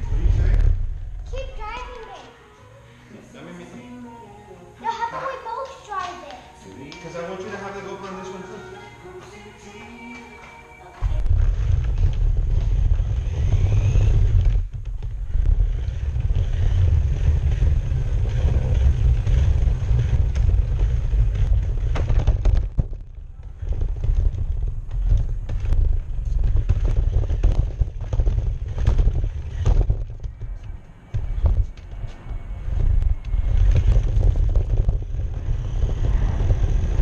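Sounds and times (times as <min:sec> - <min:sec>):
rc car motor rumbling: 0:11.0 - 0:37.0.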